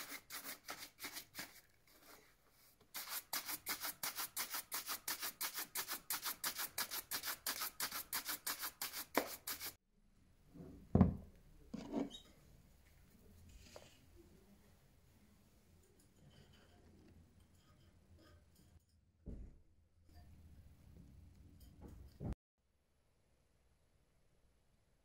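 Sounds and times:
knocks on wooden bench: 11.0 - 11.2.

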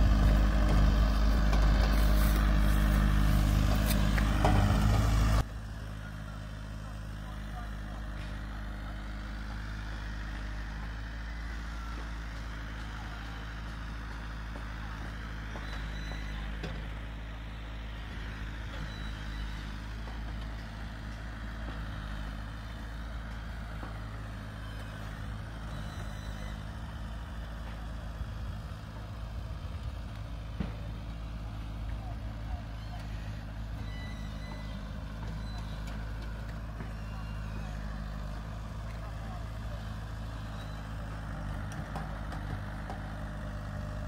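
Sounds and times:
low engine drone: 0.0 - 13.4, 27.6 - 44.0.

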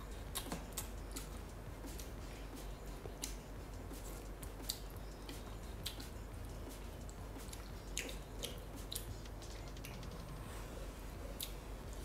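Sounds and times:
person chewing noodles: 0.0 - 9.2
steady low hum: 0.0 - 12.0.

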